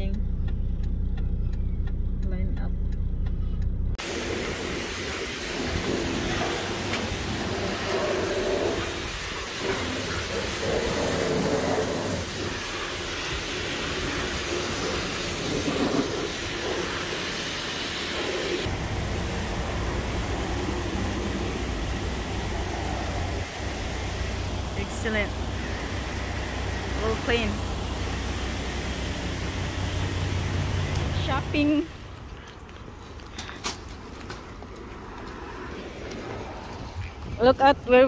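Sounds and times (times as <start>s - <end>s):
pressure washer spraying water: 4.0s - 31.8s.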